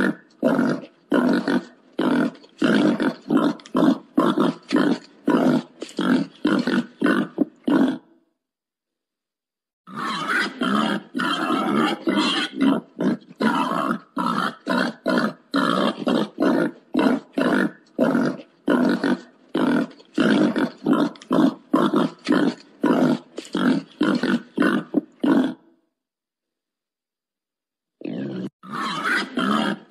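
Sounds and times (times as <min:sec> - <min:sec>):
wild boar grunting: 0:00.0 - 0:08.1, 0:09.9 - 0:25.7.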